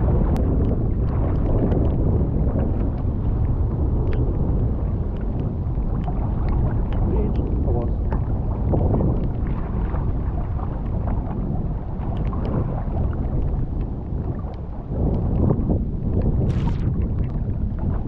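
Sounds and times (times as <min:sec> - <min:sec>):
choppy water: 0:00.0 - 0:18.0
wind buffeting microphone: 0:00.0 - 0:18.0
light ticks: 0:00.3 - 0:02.0, 0:04.0 - 0:04.4, 0:05.1 - 0:09.4, 0:12.1 - 0:12.6, 0:13.3 - 0:13.9.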